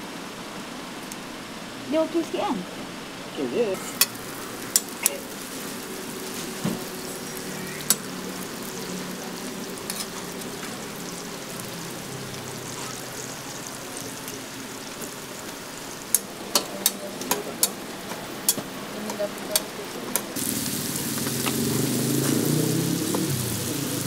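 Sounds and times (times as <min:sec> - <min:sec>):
food sizzling on a griddle: 0:03.5 - 0:24.0
tongs clicking on griddle: 0:03.8 - 0:05.2, 0:07.8 - 0:08.1, 0:16.1 - 0:20.3.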